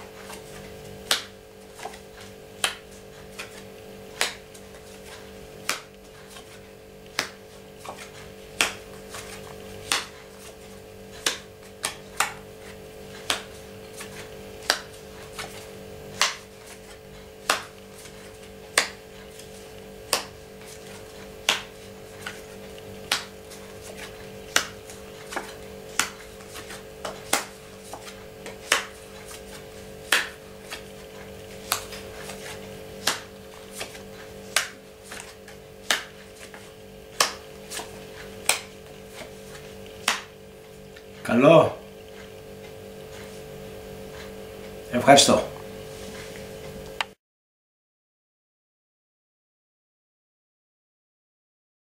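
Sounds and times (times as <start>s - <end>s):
steady hum: 0.0s - 47.2s.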